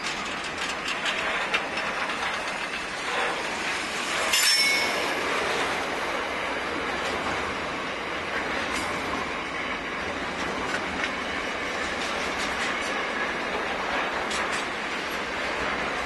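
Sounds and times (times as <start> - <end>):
wheels clicking over rail joints: 0.0 - 5.5, 10.0 - 16.0
freight train wheels rumbling: 0.0 - 16.0.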